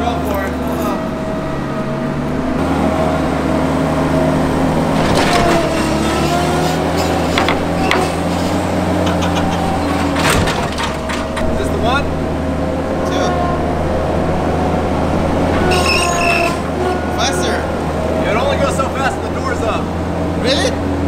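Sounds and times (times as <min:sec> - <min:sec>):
sweeper engine running: 0:00.0 - 0:21.0
metal knocks from ramps: 0:04.9 - 0:11.8.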